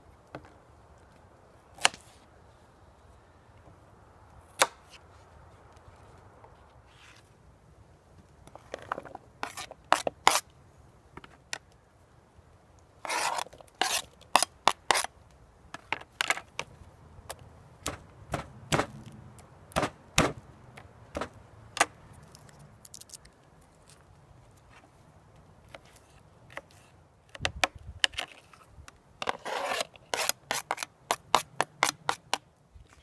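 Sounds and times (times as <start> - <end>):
knife scraping board: 9.4 - 10.4, 13.0 - 15.1, 29.2 - 32.3.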